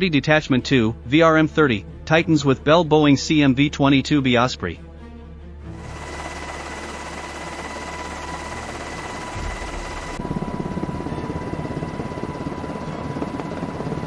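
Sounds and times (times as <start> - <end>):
mechanical engine drone: 5.7 - 14.0
high thin whine: 5.8 - 11.9
fast low beating: 6.2 - 13.9.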